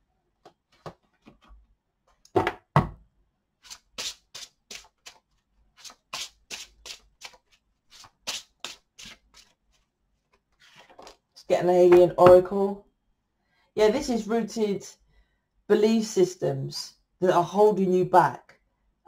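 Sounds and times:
cards shuffled by hand: 3.6s - 11.2s.

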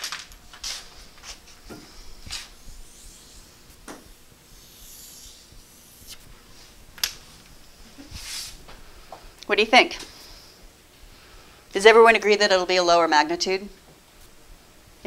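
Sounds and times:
chalk scratching on blackboard: 1.9s - 6.3s.

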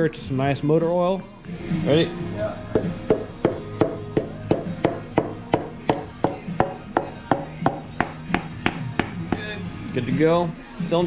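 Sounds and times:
music with percussive beat: 2.7s - 9.7s.

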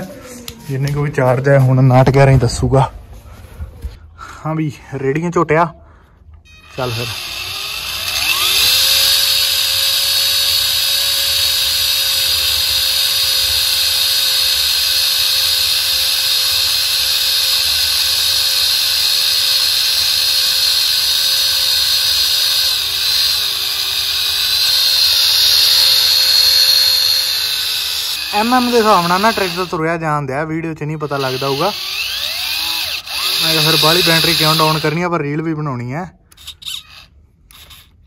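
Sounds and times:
electric motor whining: 6.5s - 29.8s, 31.0s - 35.0s.

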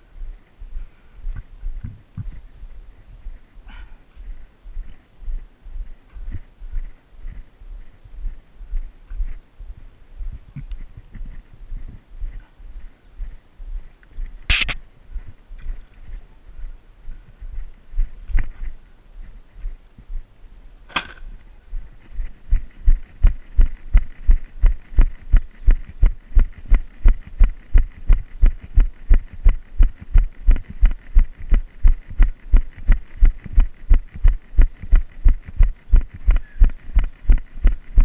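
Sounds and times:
sharp click: 14.5s - 14.8s.

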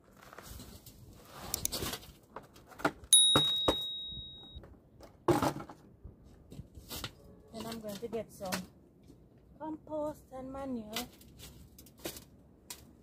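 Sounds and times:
sharp metallic ding: 3.2s - 4.6s.

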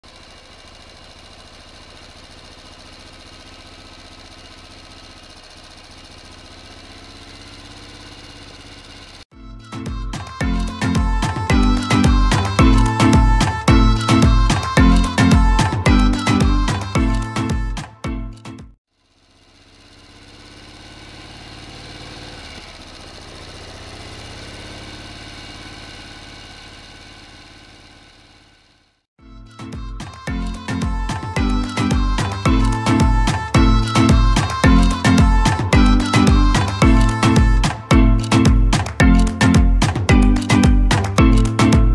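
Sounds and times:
boat engine running: 0.1s - 9.2s, 29.8s - 39.2s
boat engine humming: 29.4s - 38.3s.

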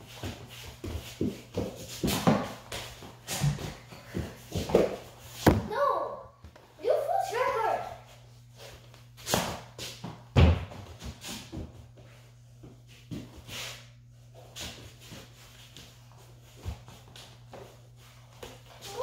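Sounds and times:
feet stepping and shuffling: 0.0s - 5.7s, 7.4s - 19.0s
ball thudding on hardwood floor: 4.5s - 5.7s, 9.3s - 11.0s.

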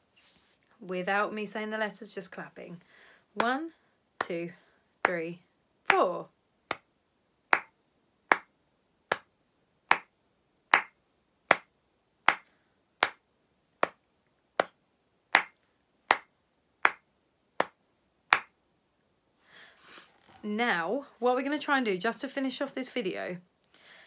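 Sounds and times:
person clapping hands: 7.5s - 7.7s, 8.3s - 8.5s, 9.9s - 10.1s, 10.7s - 11.7s, 12.3s - 13.2s, 15.4s - 17.0s, 17.6s - 18.5s.

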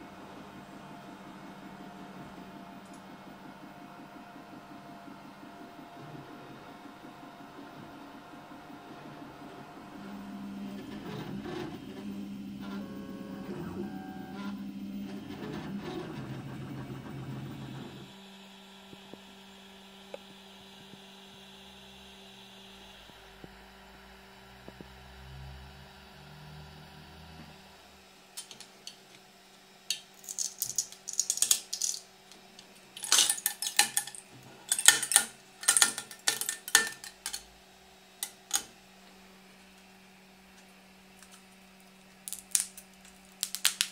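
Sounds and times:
printer motor hum: 0.0s - 29.8s.

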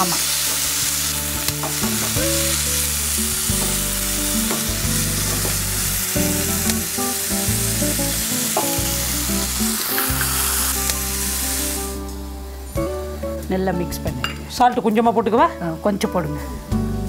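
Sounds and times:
food sizzling in a frying pan: 0.0s - 13.5s.

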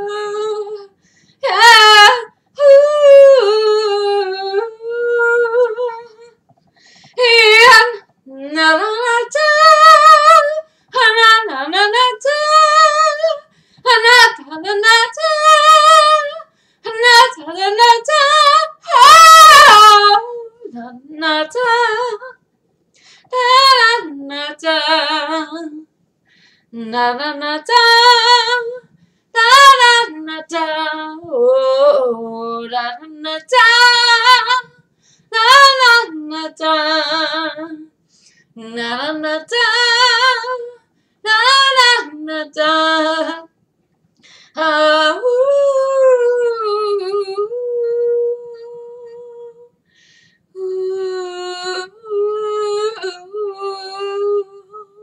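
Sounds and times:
woman singing unaccompanied: 0.0s - 6.4s, 7.1s - 22.4s, 23.3s - 25.9s, 26.7s - 37.9s, 38.6s - 43.5s, 44.6s - 49.7s, 50.6s - 55.0s.

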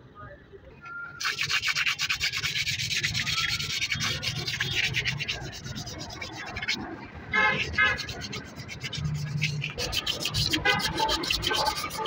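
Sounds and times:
rhythmic scratchy rubbing: 1.2s - 12.0s.

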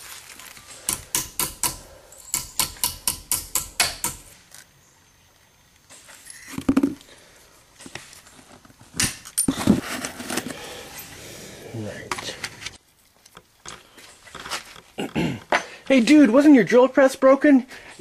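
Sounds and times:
hammer striking copper strip: 0.9s - 4.3s.

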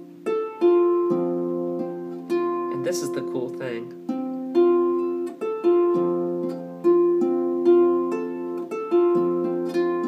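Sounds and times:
harp plucked: 0.0s - 10.0s.

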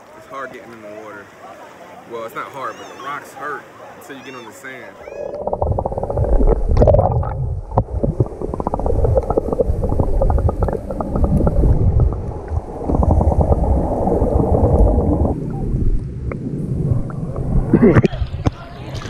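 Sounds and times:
muffled underwater rumble: 5.0s - 19.0s
underwater crackling and clicks: 5.2s - 19.0s.

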